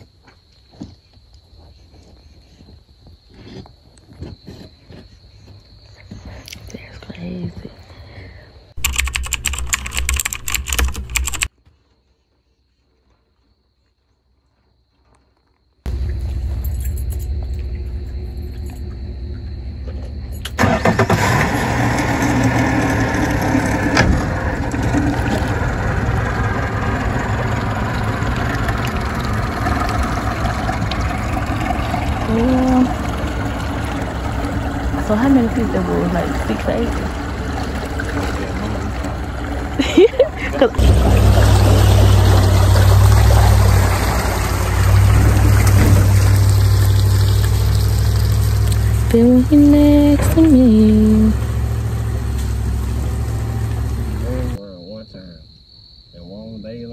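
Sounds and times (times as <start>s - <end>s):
outboard motor running: 15.9s - 54.6s
water pouring off boat hull: 20.6s - 50.5s.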